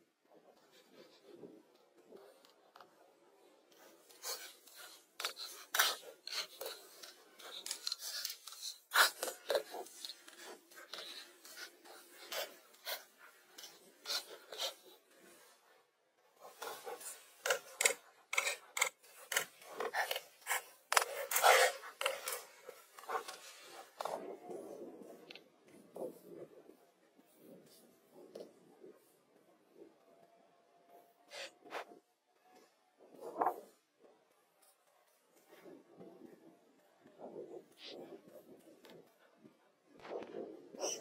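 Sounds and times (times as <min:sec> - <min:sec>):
hands scraping stony soil: 0:16.4 - 0:24.3.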